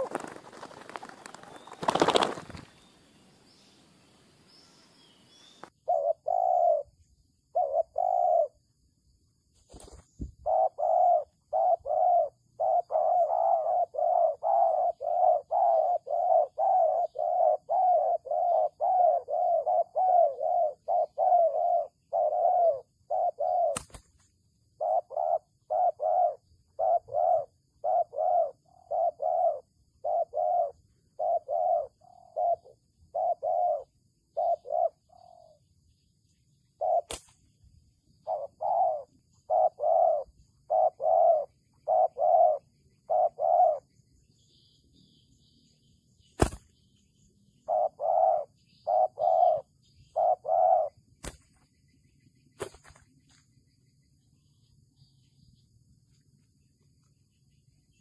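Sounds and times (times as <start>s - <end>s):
doves cooing: 0.0s - 2.7s, 5.8s - 8.6s, 9.8s - 24.0s, 24.8s - 35.6s, 36.8s - 37.2s, 38.2s - 43.9s, 47.6s - 51.4s.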